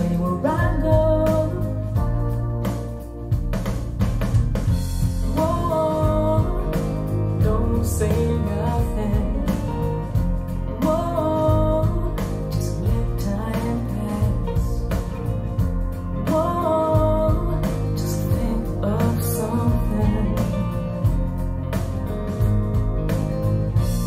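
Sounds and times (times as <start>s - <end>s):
rock song with singing and drums: 0.0s - 24.0s.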